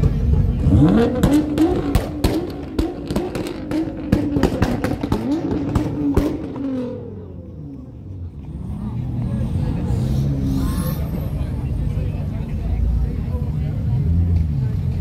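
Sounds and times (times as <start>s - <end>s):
car engine revving: 0.0s - 15.0s
exhaust popping and cracking: 0.9s - 6.8s.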